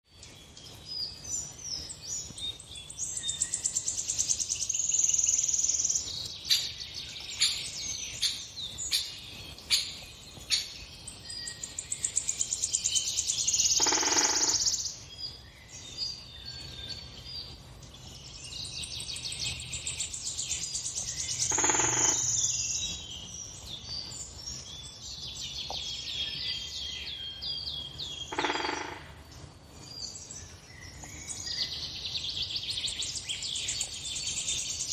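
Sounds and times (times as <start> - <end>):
birds chirping and trilling: 0.1 - 34.9
longer lower bird call: 3.2 - 15.0, 20.0 - 23.7, 25.7 - 29.4.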